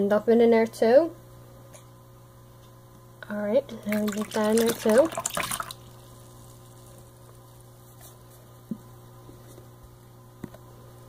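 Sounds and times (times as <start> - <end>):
low electrical hum: 0.0 - 11.0
liquid splashing into cup: 3.8 - 7.0.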